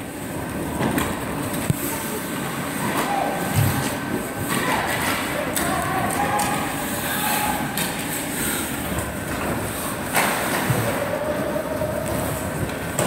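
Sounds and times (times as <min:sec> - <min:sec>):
arena noise: 0:00.0 - 0:13.0.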